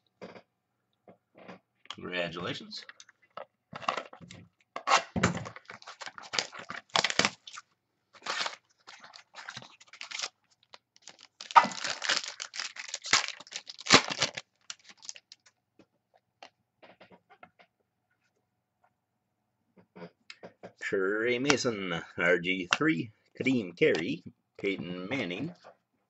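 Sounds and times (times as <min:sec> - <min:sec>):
foil wrapper tearing and crinkling: 0:05.4 - 0:15.5.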